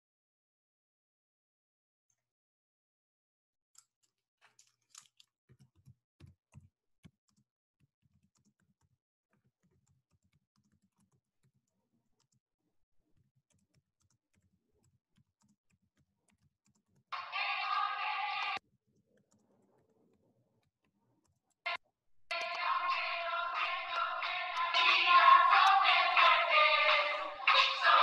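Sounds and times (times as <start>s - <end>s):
keyboard typing: 13.2s - 28.0s
loud steady tones: 17.2s - 18.6s, 22.3s - 28.0s.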